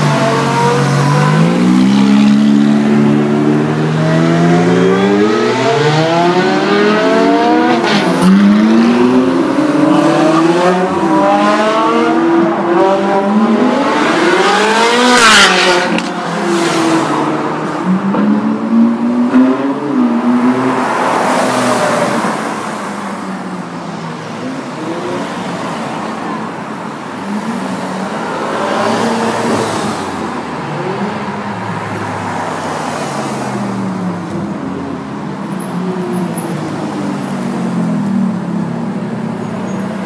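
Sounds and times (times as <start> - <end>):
sports cars revving past: 0.0 - 23.3, 27.2 - 34.3.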